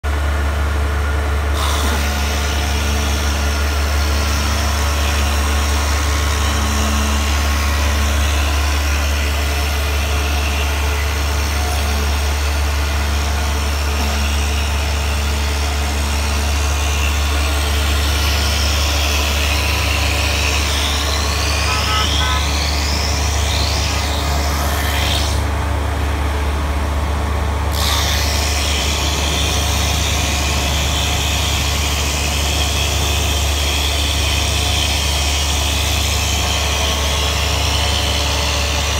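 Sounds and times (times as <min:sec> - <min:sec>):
cutter head shaving wood: 0:01.5 - 0:25.6, 0:27.6 - 0:38.9
electric motor humming: 0:01.5 - 0:38.9
rising machine whines: 0:01.9 - 0:25.5.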